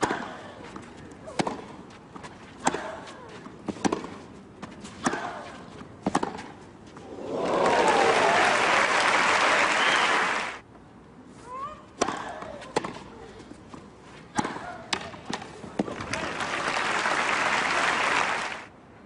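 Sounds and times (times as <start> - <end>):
tennis ball struck by racket: 1.3 - 1.7, 3.7 - 4.2, 6.0 - 6.5, 12.0 - 13.0
crowd applause: 7.1 - 10.6, 16.0 - 18.7.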